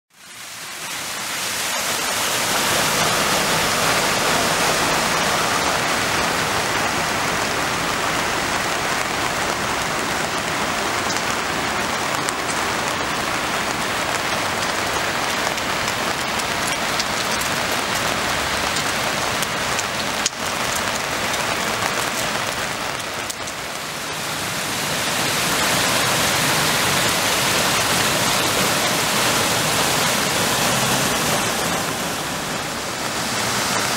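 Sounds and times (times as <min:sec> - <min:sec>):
heavy rain on a flooded street: 0:00.1 - 0:33.9.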